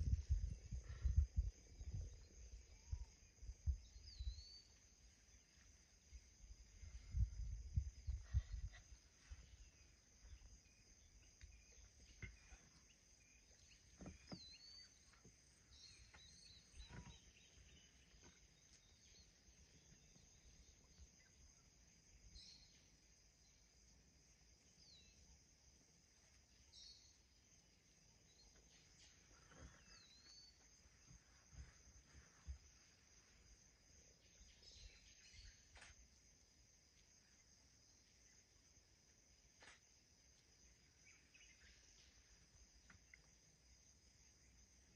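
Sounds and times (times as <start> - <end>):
bird chirps: 1.1 - 5.3, 8.0 - 22.9, 28.2 - 31.8, 34.2 - 36.0, 40.8 - 43.3.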